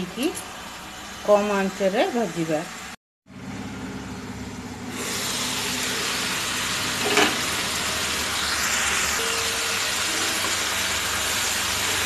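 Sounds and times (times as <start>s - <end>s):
vegetables sizzling in pan: 4.9s - 12.0s.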